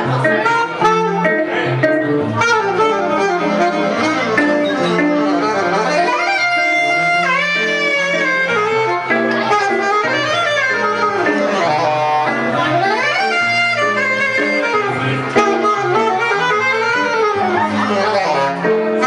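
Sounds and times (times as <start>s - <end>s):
electric guitar playing: 0.0s - 19.0s
saxophone melody: 0.0s - 19.0s.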